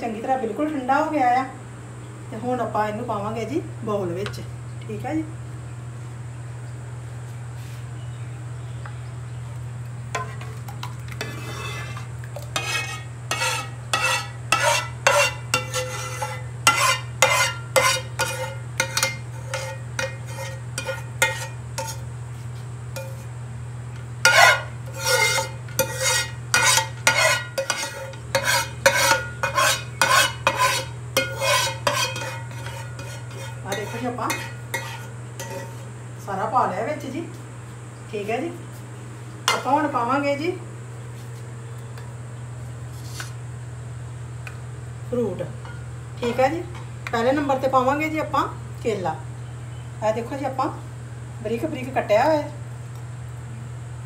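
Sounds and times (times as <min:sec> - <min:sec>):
spoon scraping frying pan: 0:10.1 - 0:23.3, 0:24.2 - 0:36.0, 0:39.5 - 0:39.8.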